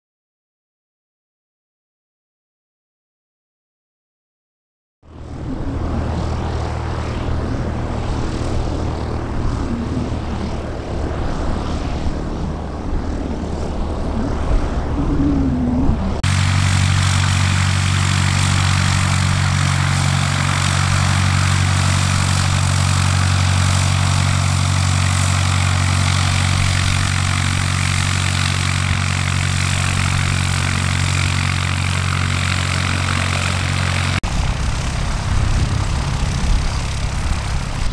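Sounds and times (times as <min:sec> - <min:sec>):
propeller aircraft engine running: 0:05.0 - 0:37.9
strong low engine hum: 0:05.0 - 0:37.9.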